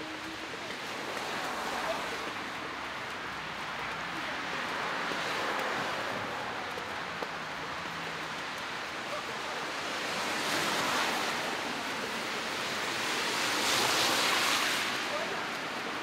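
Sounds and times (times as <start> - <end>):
rushing hiss of street ambience: 0.0 - 16.0.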